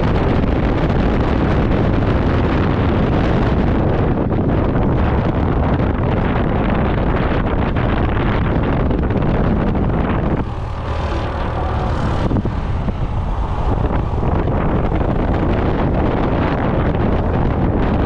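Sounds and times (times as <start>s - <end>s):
wind buffeting microphone: 0.0s - 18.0s
scooter engine running: 9.3s - 18.0s.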